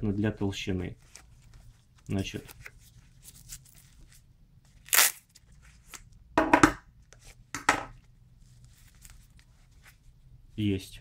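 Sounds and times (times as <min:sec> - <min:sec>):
velcro ripping apart: 0:04.8 - 0:06.0.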